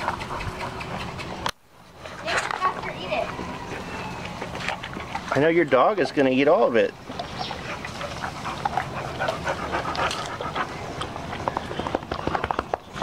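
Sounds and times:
dog breathing noisily: 0.0s - 1.4s, 7.6s - 11.8s
dog chomping and slurping: 0.0s - 1.4s, 7.1s - 12.7s.

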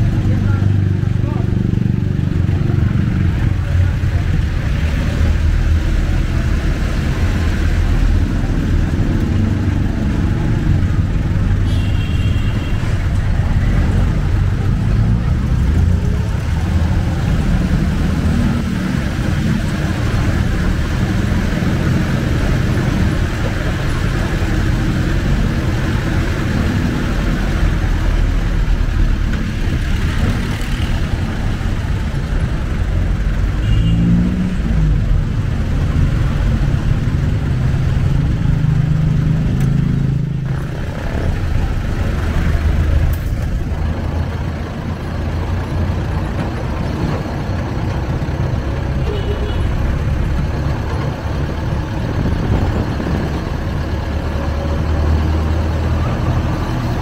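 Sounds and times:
diesel engine and road noise: 0.0s - 57.0s.

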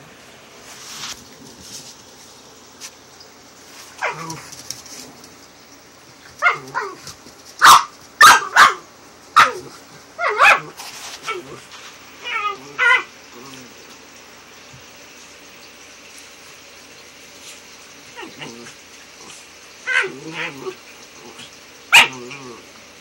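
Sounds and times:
small dogs barking and yipping: 3.9s - 5.1s, 6.2s - 13.8s, 18.0s - 22.7s.

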